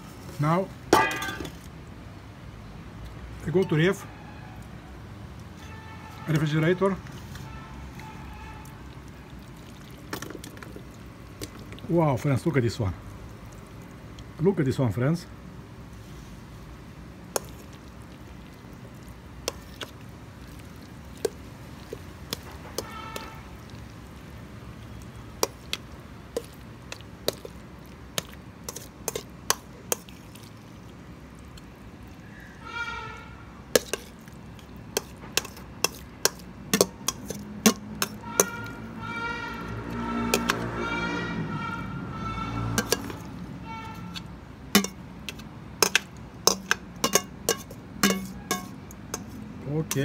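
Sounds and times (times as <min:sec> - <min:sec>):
metal spoon clinking on pot: 0:35.0 - 0:38.6, 0:40.4 - 0:40.6, 0:42.8 - 0:43.3, 0:44.1 - 0:50.0
metal spoon clinking on glass: 0:44.8 - 0:45.0, 0:45.8 - 0:48.8.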